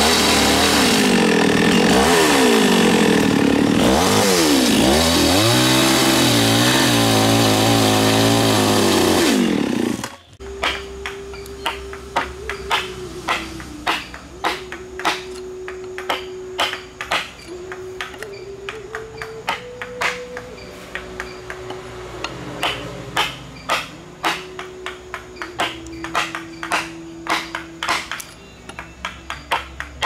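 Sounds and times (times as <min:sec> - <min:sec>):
mallet striking chisel into wood: 0:10.0 - 0:30.0.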